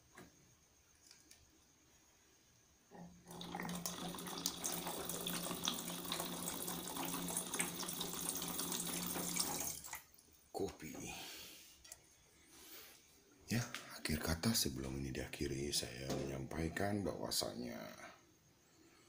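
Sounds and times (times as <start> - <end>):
water pouring into a metal pot: 3.2 - 10.2.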